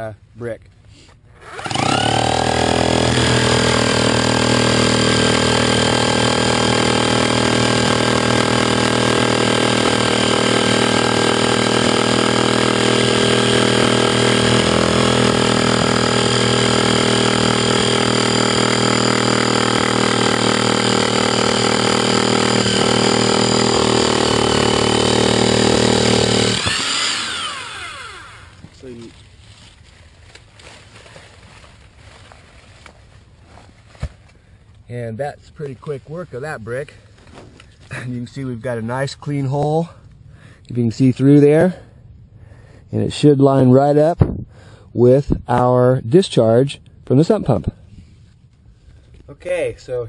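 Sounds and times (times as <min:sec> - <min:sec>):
hammer drill boring through brick: 0:01.4 - 0:28.6.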